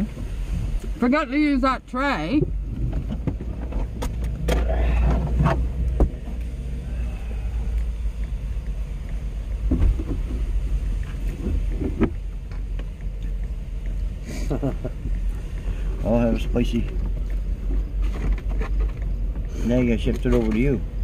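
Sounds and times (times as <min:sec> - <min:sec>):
steady low rumble: 0:00.0 - 0:21.0
sharp knocks and clatters: 0:09.6 - 0:10.5.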